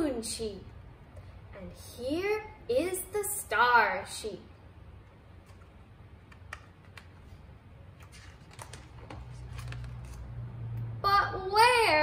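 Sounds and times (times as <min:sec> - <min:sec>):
book pages being turned: 0:05.4 - 0:10.6.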